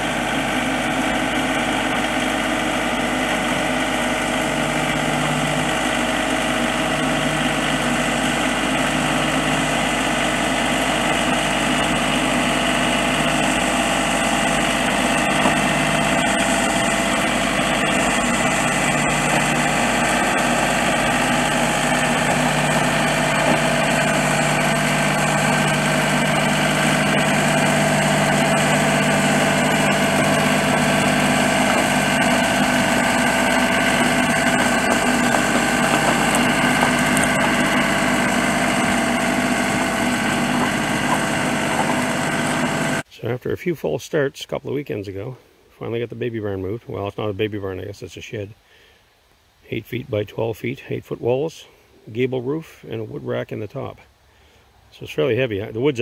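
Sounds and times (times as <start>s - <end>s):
diesel tractor engine running: 0.0s - 43.1s.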